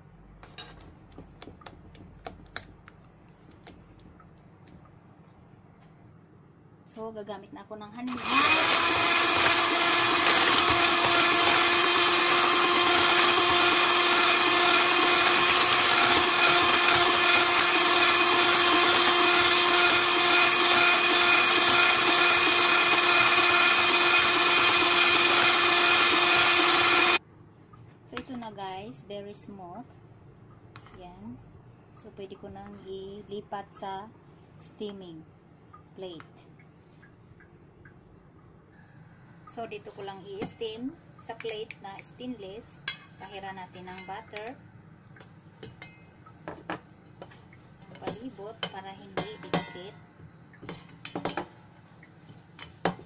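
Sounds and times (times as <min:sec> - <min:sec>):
metal spoon clinking in steel bowl: 0:00.5 - 0:00.9
electric hand mixer whisking batter: 0:08.1 - 0:27.2.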